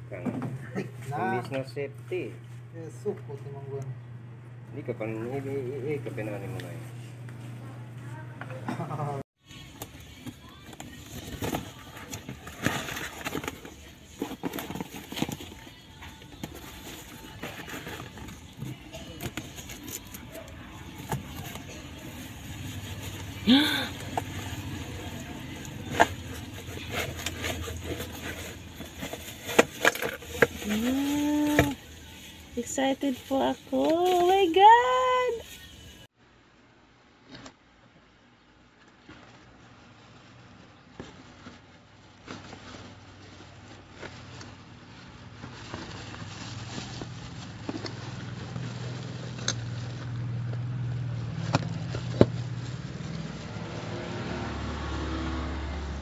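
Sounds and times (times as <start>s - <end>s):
plastic wrapping crinkling: 10.0s - 35.8s, 38.7s - 53.9s
cardboard box handled: 25.7s - 31.8s
plastic bag crinkling: 39.0s - 53.6s.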